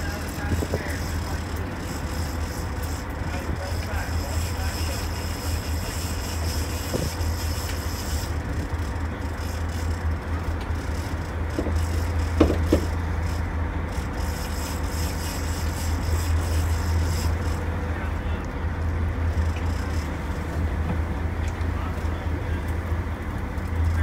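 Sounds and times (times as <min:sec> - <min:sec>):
boat engine humming: 0:00.0 - 0:24.0
wind: 0:00.0 - 0:24.0
sharp knocks: 0:12.4 - 0:12.9.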